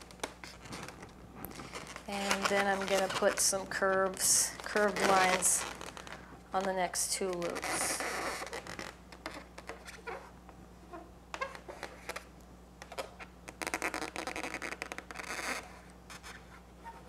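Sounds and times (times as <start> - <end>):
marker squeaking on balloon: 4.2 - 6.1, 7.3 - 17.0.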